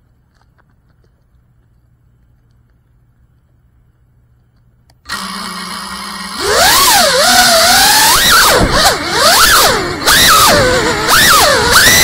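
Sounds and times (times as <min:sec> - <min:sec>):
faint low hum: 0:00.0 - 0:05.4.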